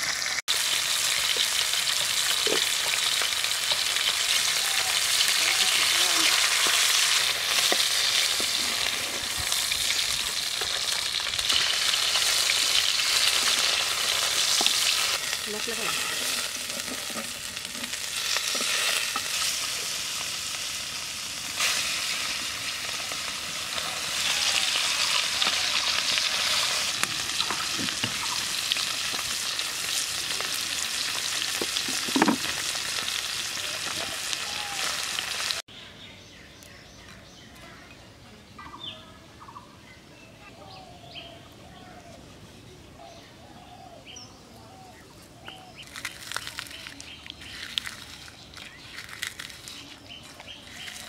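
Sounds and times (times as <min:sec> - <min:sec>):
fish sizzling in hot oil: 0:00.0 - 0:35.7
spatula turning fish: 0:01.2 - 0:20.2, 0:45.8 - 0:51.0.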